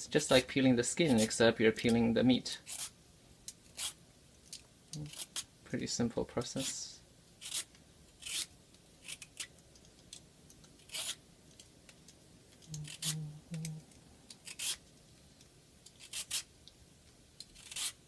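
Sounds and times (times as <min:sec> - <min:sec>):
vegetable peeler rasping: 0:05.0 - 0:05.5, 0:07.4 - 0:09.5, 0:10.8 - 0:11.2, 0:12.7 - 0:13.7, 0:14.4 - 0:14.8, 0:16.0 - 0:16.5, 0:17.5 - 0:18.0.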